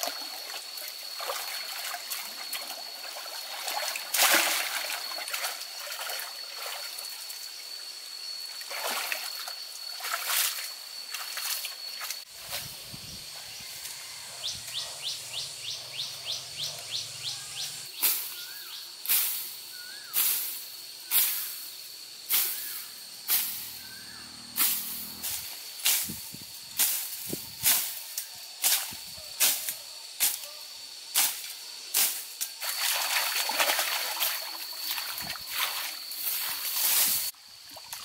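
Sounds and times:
high insect drone: 0:00.0 - 0:38.0
wet slaps or splashes: 0:04.1 - 0:05.4, 0:32.0 - 0:35.9.

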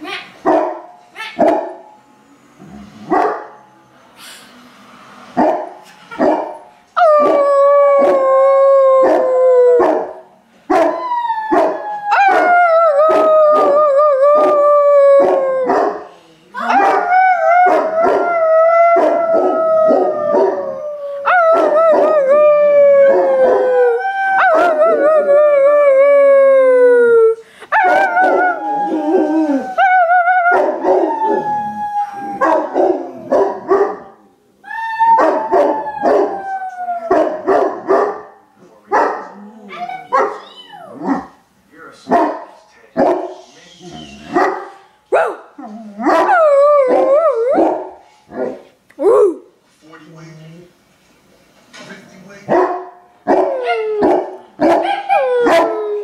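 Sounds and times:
dogs barking: 0:00.4 - 0:01.8, 0:03.1 - 0:03.6, 0:05.4 - 0:06.6, 0:10.7 - 0:11.0, 0:16.7 - 0:17.1, 0:32.4 - 0:34.2, 0:37.1 - 0:39.4, 0:40.1 - 0:41.4, 0:42.1 - 0:43.4, 0:44.3 - 0:48.6, 0:52.5 - 0:55.8
dogs howling: 0:07.0 - 0:10.1, 0:10.8 - 0:16.0, 0:16.6 - 0:34.0, 0:34.7 - 0:38.0, 0:43.0 - 0:49.4, 0:53.3 - 0:56.0.

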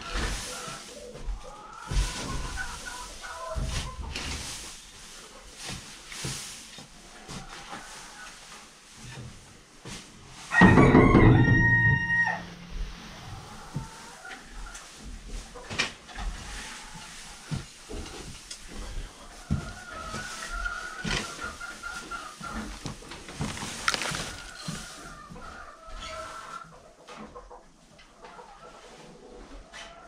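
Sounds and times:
hay rustling: 0:00.0 - 0:26.6
rooster crowing: 0:10.5 - 0:14.0
hay fork knocking: 0:10.6 - 0:14.0.

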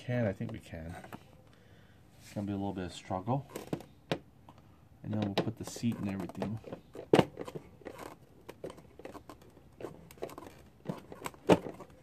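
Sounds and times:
tools clicking and tapping on plastic: 0:03.5 - 0:12.0.

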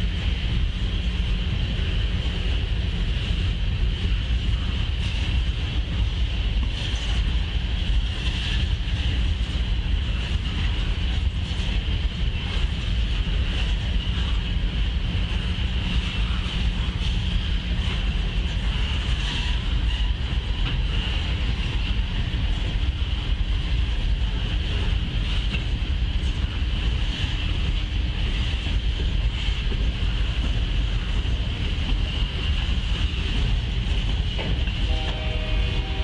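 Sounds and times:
train wheels rumbling on rail: 0:00.0 - 0:36.0
train horn: 0:34.6 - 0:36.0.

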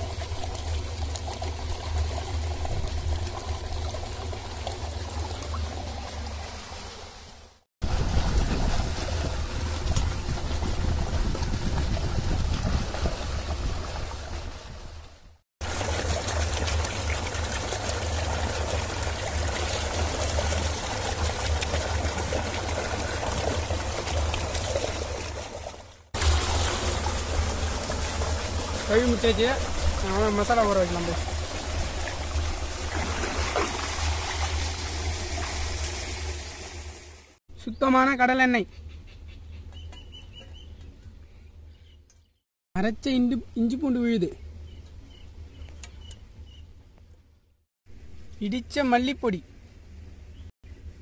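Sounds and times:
water gushing from pipe: 0:00.0 - 0:37.4.

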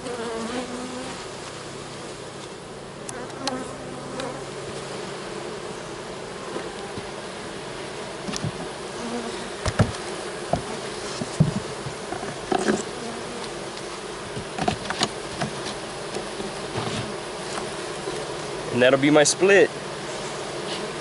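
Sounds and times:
bees buzzing: 0:00.0 - 0:21.0
wooden hive boxes knocking: 0:06.5 - 0:07.2, 0:08.2 - 0:18.7.

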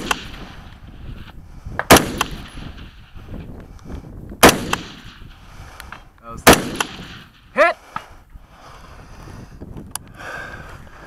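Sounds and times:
rifle shots: 0:00.0 - 0:00.8, 0:01.8 - 0:03.2, 0:04.4 - 0:05.4, 0:06.4 - 0:07.5.

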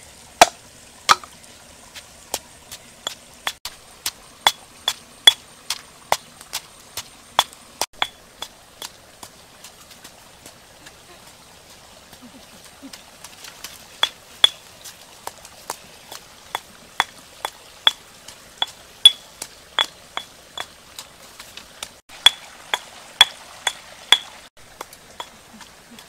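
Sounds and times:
pestle clinking in mortar: 0:07.4 - 0:08.9, 0:14.0 - 0:14.6, 0:18.6 - 0:20.7, 0:22.2 - 0:25.4.

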